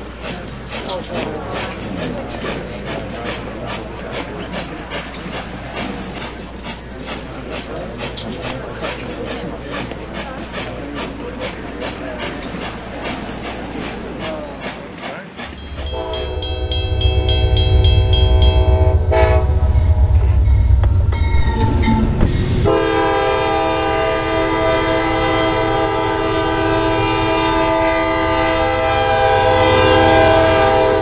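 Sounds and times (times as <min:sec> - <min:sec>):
train rumbling: 0:00.0 - 0:31.0
train horn blast: 0:15.5 - 0:31.0.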